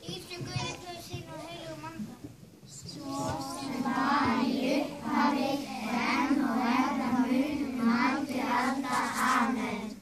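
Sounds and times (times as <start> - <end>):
young children singing: 2.7 - 10.0.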